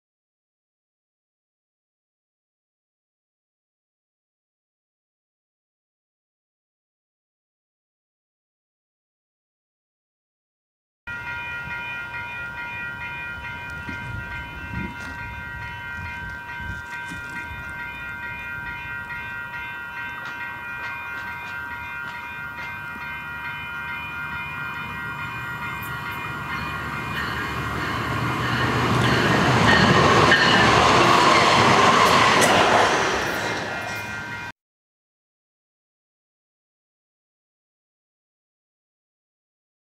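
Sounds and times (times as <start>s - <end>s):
steady ringing tone: 11.1s - 32.0s
train passing: 11.1s - 34.5s.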